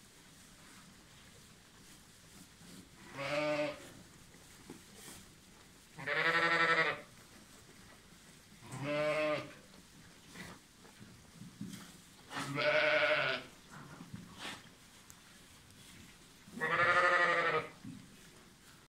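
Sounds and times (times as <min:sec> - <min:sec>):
sheep bleating: 0:03.1 - 0:03.8, 0:06.0 - 0:07.1, 0:08.6 - 0:09.6, 0:12.3 - 0:13.5, 0:16.6 - 0:17.8.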